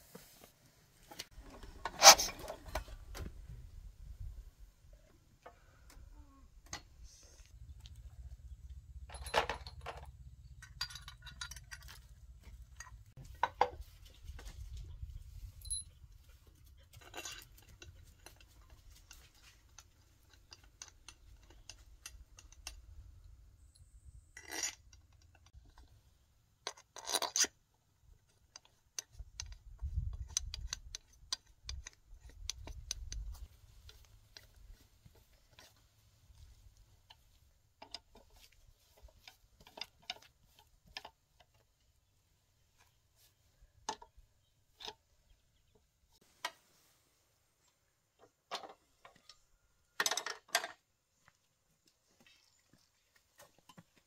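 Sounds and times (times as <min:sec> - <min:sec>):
metal hand tools clinking on engine: 0:08.9 - 0:13.0, 0:15.6 - 0:16.0.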